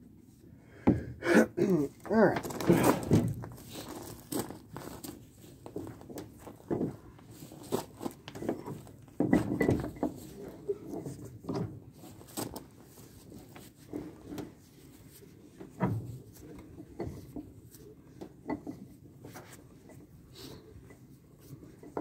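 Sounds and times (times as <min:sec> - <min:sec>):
bench vise clunking and rattling: 0:08.5 - 0:10.2.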